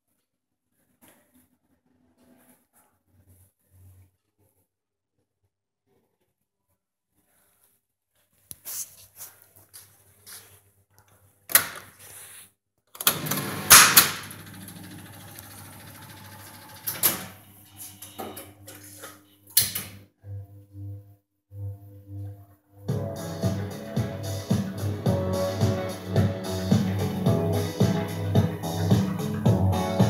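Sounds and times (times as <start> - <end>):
jukebox mechanism whirring: 13.0 - 17.4.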